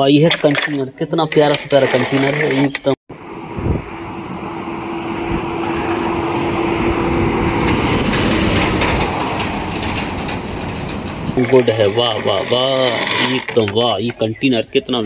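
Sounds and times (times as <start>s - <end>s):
truck driving past: 3.1s - 12.7s.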